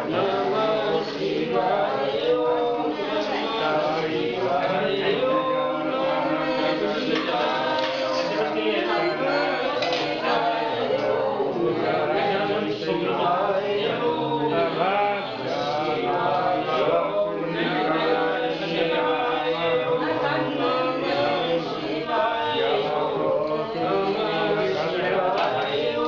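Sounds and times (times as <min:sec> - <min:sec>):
voices chanting together: 0:00.0 - 0:26.0.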